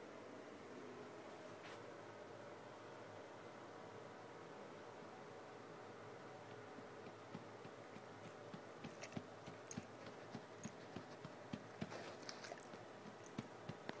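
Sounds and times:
puppy chewing with wet clicks: 6.5s - 14.0s.

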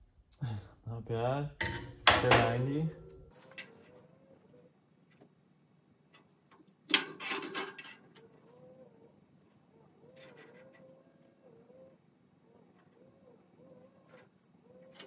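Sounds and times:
metallic clatter on steel table: 6.9s - 8.1s.

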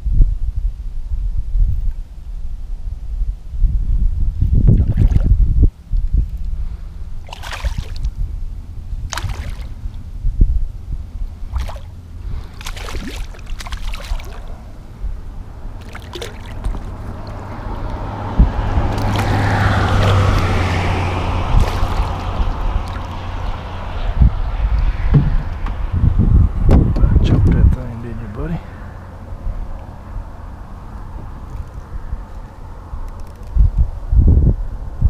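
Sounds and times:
fish splashing in water: 7.2s - 8.2s, 9.1s - 10.0s, 11.4s - 14.8s, 15.7s - 24.0s
knocks on kayak: 25.1s - 25.8s.

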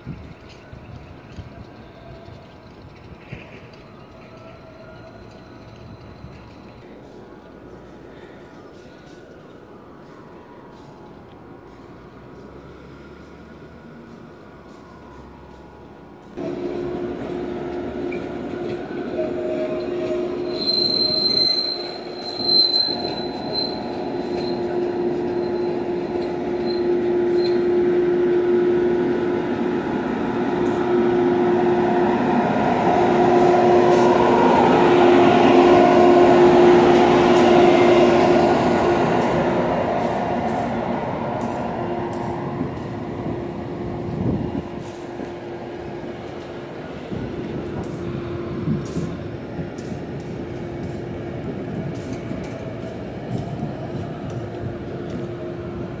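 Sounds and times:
train rolling along platform: 0.0s - 56.0s
high wheel squeal: 18.0s - 28.0s.

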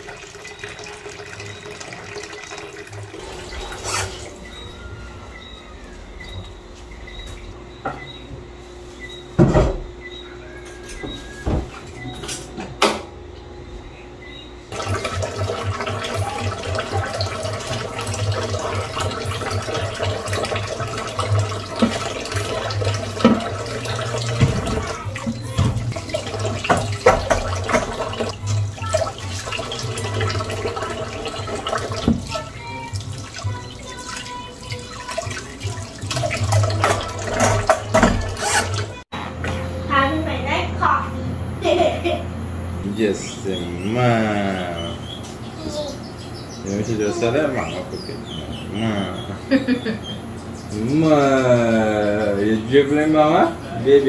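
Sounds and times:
dishes clinking and knocking: 9.4s - 9.9s, 10.6s - 13.1s, 19.0s - 28.4s, 36.1s - 38.9s
tap running into a metal sink: 14.8s - 32.5s, 35.3s - 38.9s.

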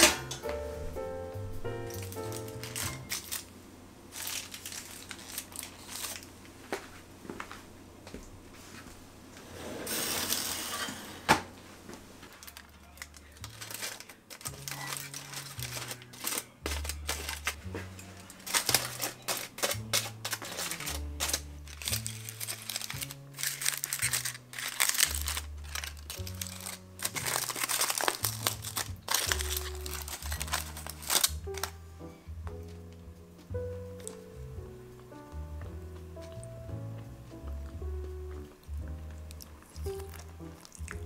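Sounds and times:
aluminium foil crinkling: 1.8s - 3.5s, 4.1s - 6.9s, 12.2s - 32.2s, 38.4s - 41.0s.

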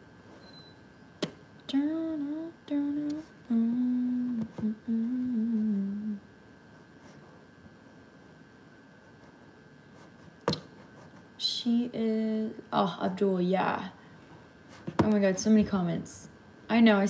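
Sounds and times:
woman humming a tune: 1.7s - 6.2s.

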